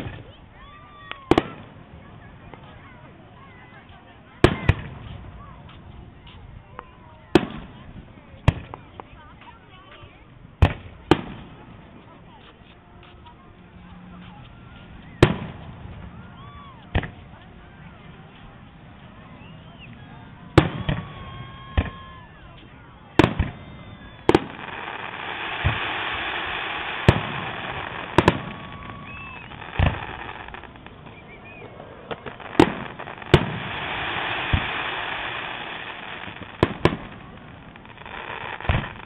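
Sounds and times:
fireworks booming: 15.1s - 17.4s, 19.2s - 39.0s.

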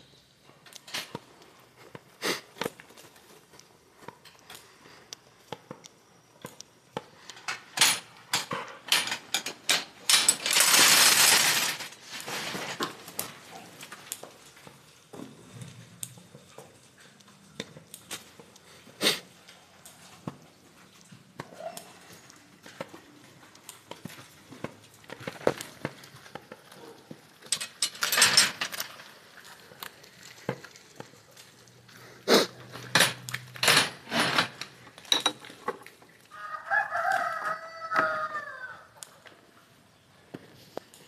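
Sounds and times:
rooster crowing: 36.3s - 39.0s.

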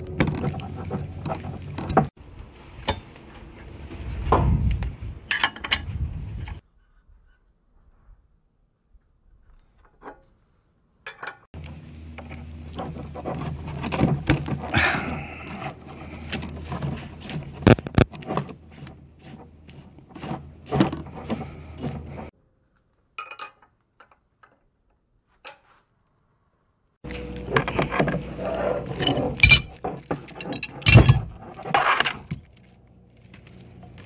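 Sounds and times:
steady low hum: 27.0s - 34.0s
metal tools clicking and clinking: 27.1s - 31.7s.

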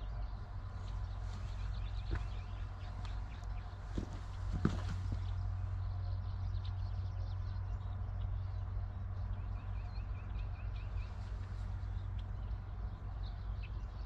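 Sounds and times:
small birds chirping: 0.0s - 14.0s
steady low rumble: 0.0s - 14.0s
soft knocks: 1.4s - 3.2s.

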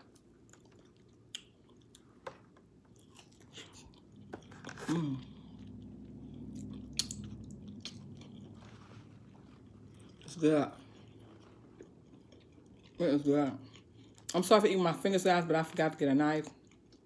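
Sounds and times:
biting and chewing food: 0.0s - 14.4s
low steady hum: 0.0s - 17.0s
wet mouth clicks: 6.6s - 8.1s.

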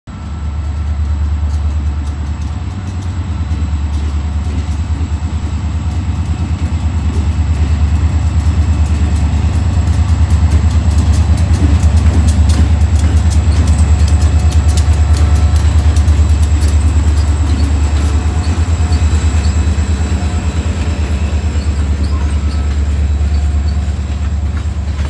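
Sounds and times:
diesel locomotives rumbling: 0.1s - 25.0s
wheels clicking on rails: 0.1s - 25.0s.

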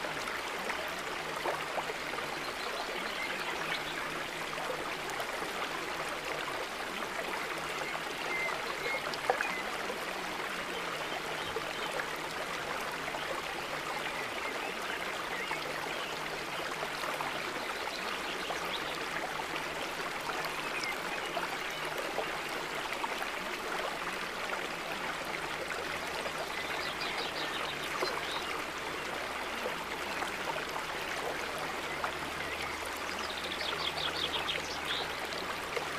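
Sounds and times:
running water: 0.0s - 35.9s.

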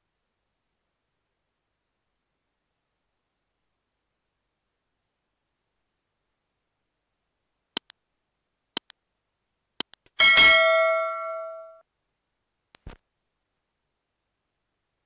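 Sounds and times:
mouse double clicks: 7.8s - 8.0s, 9.8s - 10.1s
bright bell ding: 10.2s - 11.8s.

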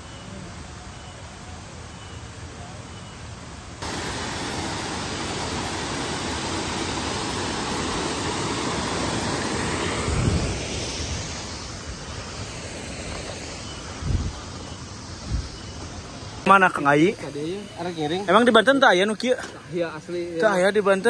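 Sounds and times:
waterfall rushing: 3.8s - 15.2s.

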